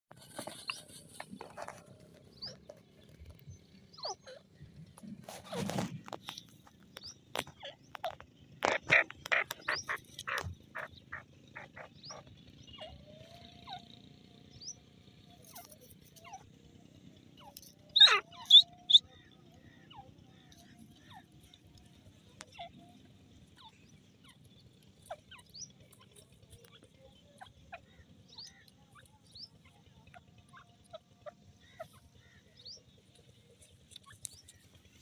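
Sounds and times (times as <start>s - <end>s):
bird sharp clicking notes: 6.3s - 11.9s
bird rising chirps: 17.4s - 19.1s.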